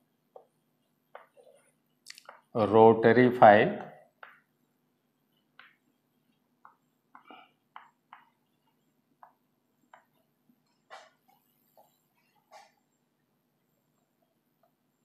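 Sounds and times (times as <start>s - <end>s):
chalk tapping and scraping on blackboard: 0.3s - 2.5s, 4.1s - 12.9s.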